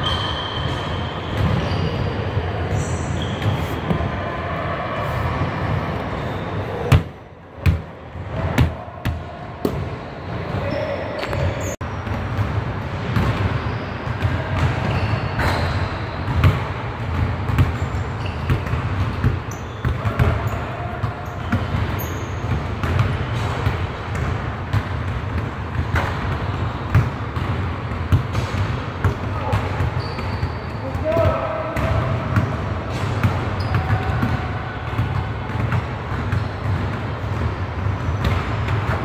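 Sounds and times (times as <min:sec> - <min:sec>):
shoe squeaks: 0:00.0 - 0:04.0, 0:10.6 - 0:11.8, 0:14.8 - 0:16.3, 0:17.8 - 0:18.6, 0:19.4 - 0:20.6, 0:21.2 - 0:22.5, 0:29.4 - 0:30.9, 0:33.6 - 0:34.0
basketballs bouncing on wooden floor: 0:14.2 - 0:39.0.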